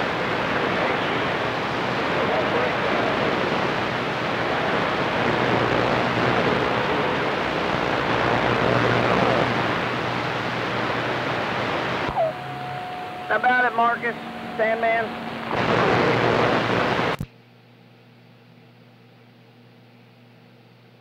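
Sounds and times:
radio static hiss: 0.0s - 17.3s
steady whistling tone: 12.1s - 15.4s.

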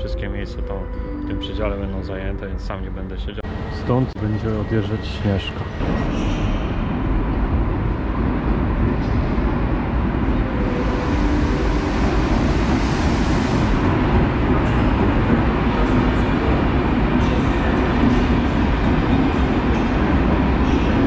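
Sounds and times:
train wheels rumbling on rails: 3.4s - 21.0s
air hiss: 10.9s - 13.9s.

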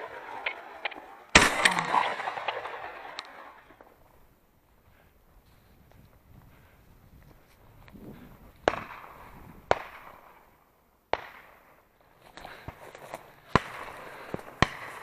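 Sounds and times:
shotgun shots with echo: 0.0s - 3.9s, 8.6s - 10.4s.

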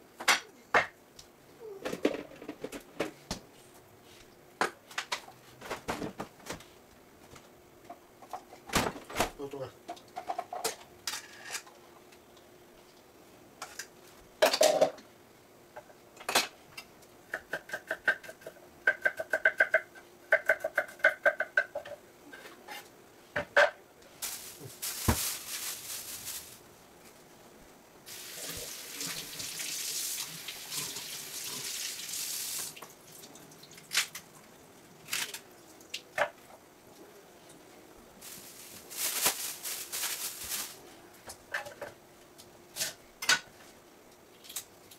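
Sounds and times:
plastic bag rustling: 24.2s - 26.7s, 38.2s - 41.0s
water tap running: 28.1s - 33.9s.

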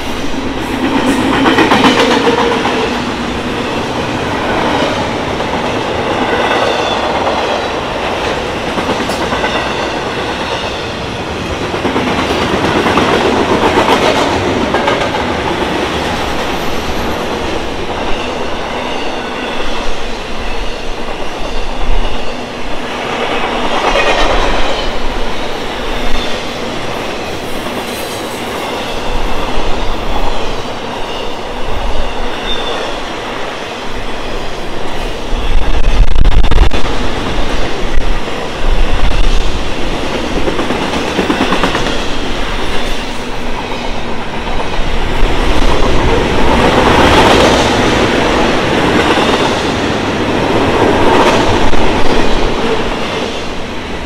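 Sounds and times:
train wheels clattering on rail joints: 0.0s - 3.2s, 11.4s - 18.2s.

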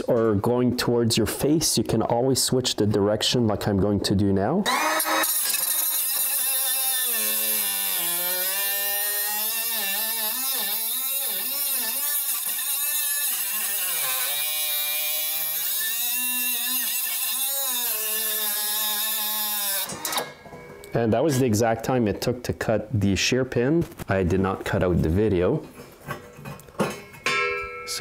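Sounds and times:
cut-off tool grinding metal: 4.7s - 20.4s.

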